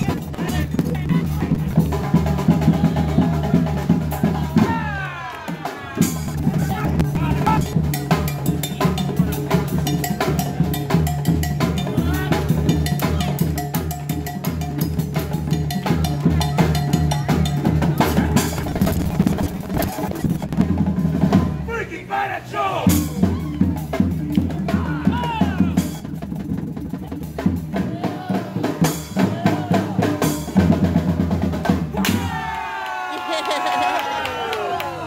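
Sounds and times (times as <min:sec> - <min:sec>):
voices shouting: 0:00.0 - 0:07.8, 0:08.5 - 0:13.5, 0:20.8 - 0:26.0, 0:27.8 - 0:30.3, 0:31.9 - 0:35.0
snare drums played fast: 0:00.0 - 0:21.6
steady bass drum beat: 0:00.0 - 0:21.7, 0:22.8 - 0:32.3.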